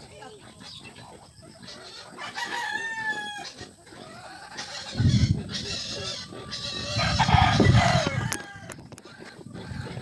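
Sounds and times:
rooster crowing: 0:02.2 - 0:03.5, 0:06.6 - 0:08.8.

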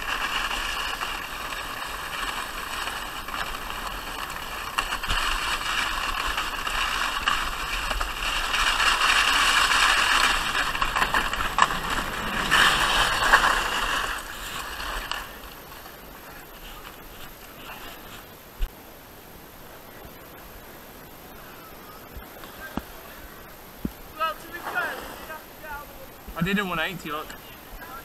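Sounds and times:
sledge hissing on snow: 0:00.0 - 0:18.4, 0:24.2 - 0:26.0.

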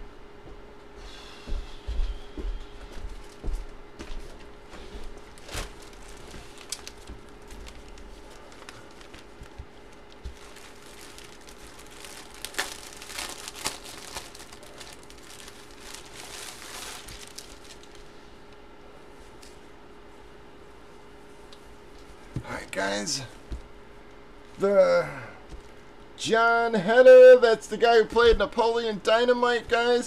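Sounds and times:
faint steady hum: 0:00.0 - 0:30.0
plastic packaging crinkling: 0:05.2 - 0:18.2.

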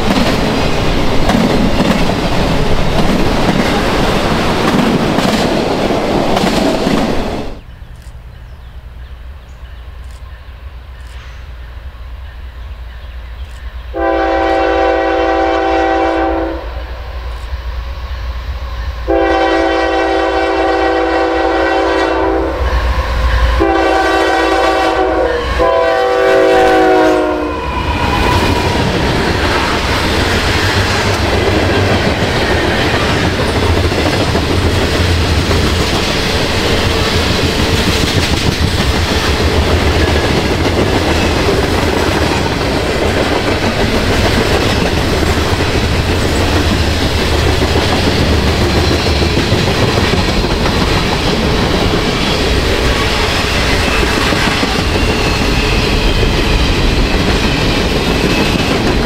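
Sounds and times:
train wheels clattering on rails: 0:00.0 - 0:07.6, 0:26.9 - 0:59.0
train horn blasts: 0:13.9 - 0:17.1, 0:19.0 - 0:28.5.

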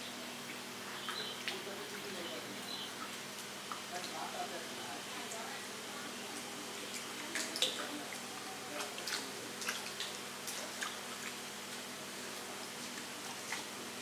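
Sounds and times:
faint steady hum: 0:00.0 - 0:14.0
fish splashing in water: 0:06.8 - 0:14.0.

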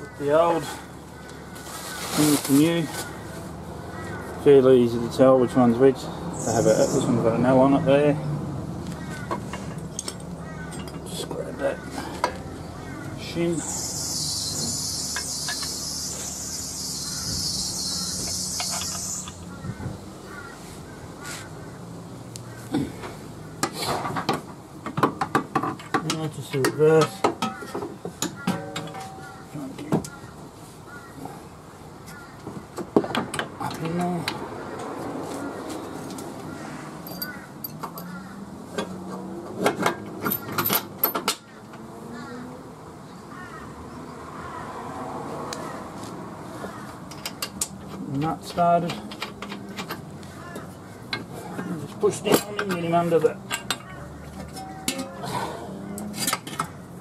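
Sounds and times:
metal tools clinking and knocking: 0:09.3 - 0:11.3, 0:18.2 - 0:19.1, 0:25.2 - 0:29.4, 0:37.0 - 0:38.2, 0:39.6 - 0:41.4, 0:51.1 - 0:55.3
insects buzzing: 0:13.5 - 0:19.7
metal parts clinking: 0:37.0 - 0:38.2, 0:40.2 - 0:41.4, 0:53.5 - 0:55.3.

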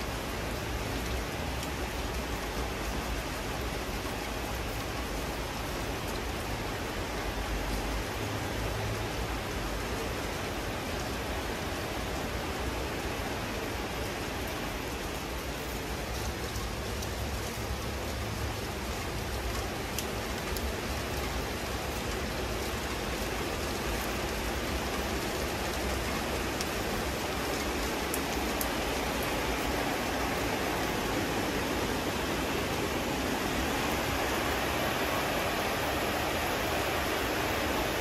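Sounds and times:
rain falling: 0:00.0 - 0:38.0
sharp drip ticks: 0:16.1 - 0:24.5.

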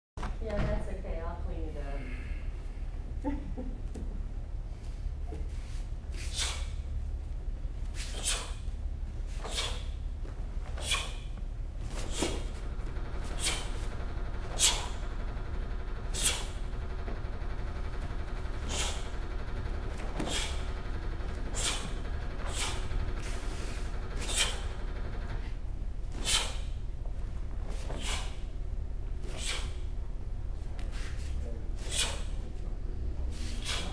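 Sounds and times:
steady low hum: 0:00.2 - 0:33.9
sharp swishing snaps: 0:06.1 - 0:06.9, 0:07.9 - 0:10.0, 0:10.6 - 0:13.9, 0:16.1 - 0:16.6, 0:20.0 - 0:20.8, 0:21.4 - 0:24.8, 0:26.1 - 0:26.8, 0:27.6 - 0:28.5, 0:29.2 - 0:30.0, 0:30.7 - 0:32.4, 0:33.4 - 0:33.9.

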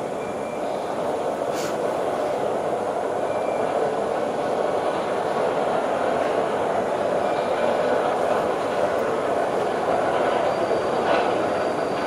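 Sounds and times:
train wheels rumbling: 0:00.0 - 0:12.0
brief hiss: 0:01.5 - 0:02.4.

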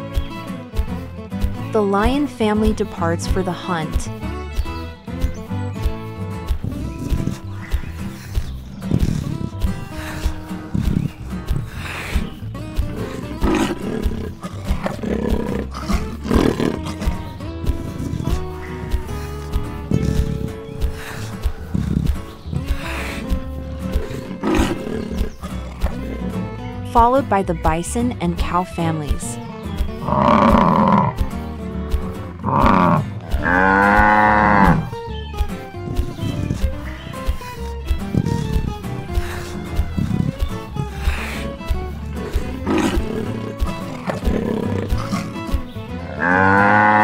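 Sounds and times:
background music with beat: 0:00.0 - 0:26.8, 0:29.1 - 0:47.0
lions roaring: 0:06.7 - 0:08.2, 0:08.9 - 0:26.5, 0:30.0 - 0:31.2, 0:32.4 - 0:35.0, 0:35.8 - 0:36.9, 0:37.6 - 0:47.0
cows mooing: 0:12.8 - 0:21.8, 0:22.7 - 0:26.6, 0:30.0 - 0:31.2, 0:32.4 - 0:35.0, 0:37.6 - 0:47.0.

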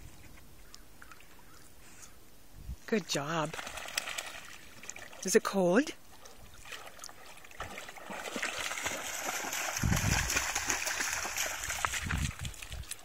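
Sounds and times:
lake water splashing and lapping: 0:03.2 - 0:13.0.

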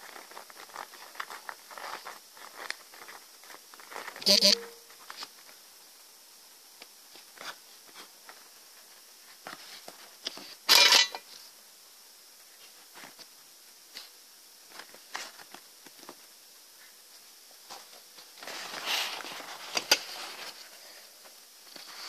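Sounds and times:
paper rustling: 0:00.0 - 0:04.3.

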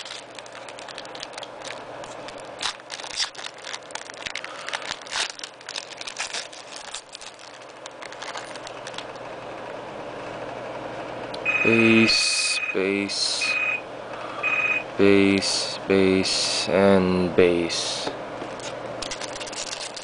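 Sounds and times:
foil card pack crinkling: 0:00.0 - 0:09.2, 0:18.5 - 0:20.0.

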